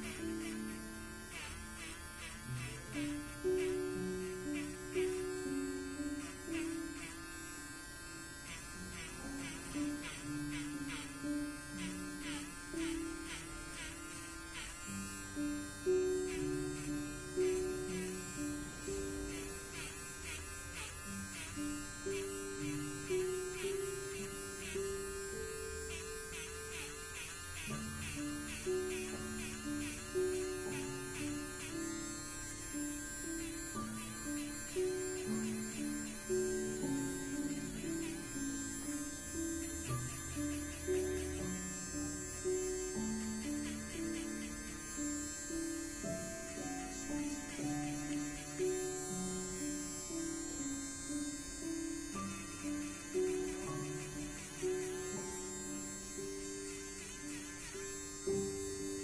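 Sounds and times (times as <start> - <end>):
slow instrumental music: 0.0 - 59.0.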